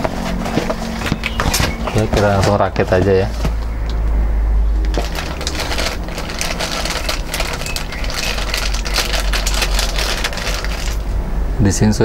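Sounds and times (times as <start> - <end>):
cardboard and plastic crinkling: 0.0 - 3.7, 4.9 - 11.1
steady low hum: 0.0 - 12.0.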